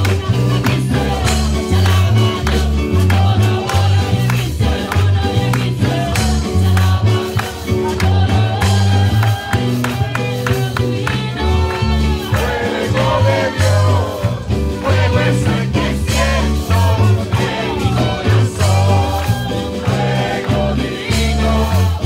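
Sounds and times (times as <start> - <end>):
woman singing into a microphone: 0.0 - 12.8
church praise band playing: 0.0 - 22.0
drums: 0.0 - 22.0
electric bass: 0.0 - 22.0.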